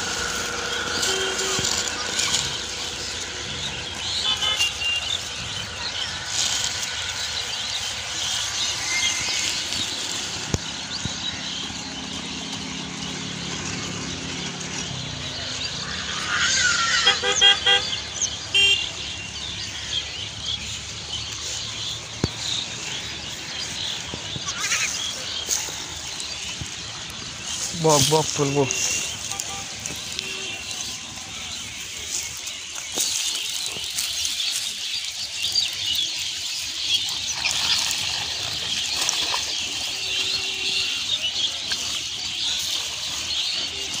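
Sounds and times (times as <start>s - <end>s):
small birds chirping: 0.0s - 44.0s
vehicle horn beeps: 0.1s - 2.6s, 4.2s - 5.3s, 17.0s - 19.4s, 28.6s - 31.2s, 39.8s - 41.2s.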